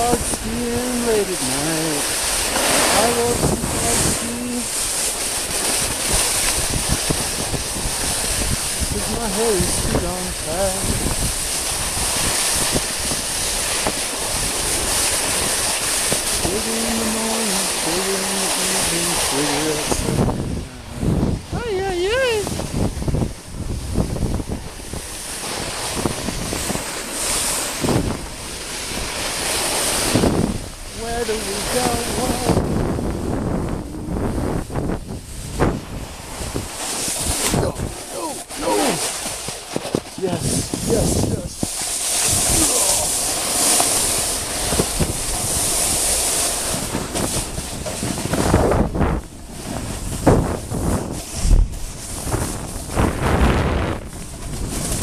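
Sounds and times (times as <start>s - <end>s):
snowboard sliding over snow: 0.0s - 55.0s
wind buffeting microphone: 0.0s - 55.0s.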